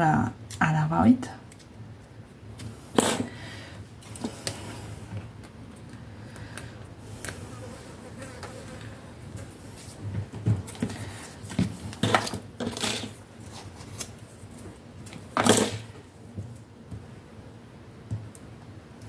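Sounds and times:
paper rustling: 0:10.6 - 0:14.7.

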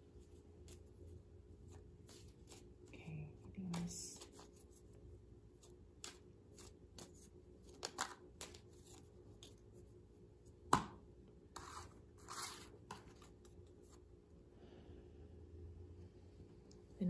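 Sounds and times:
playing cards rustling: 0:00.2 - 0:02.9, 0:03.6 - 0:10.0, 0:11.6 - 0:14.0.

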